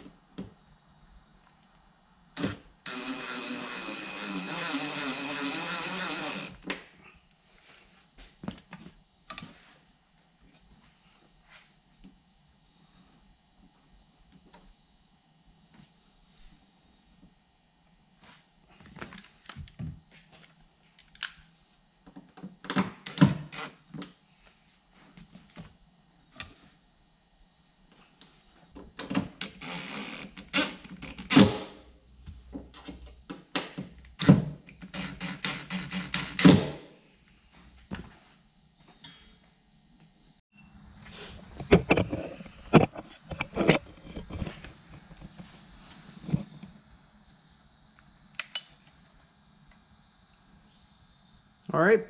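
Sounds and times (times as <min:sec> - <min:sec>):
cordless drill driving screws: 0:02.4 - 0:06.7.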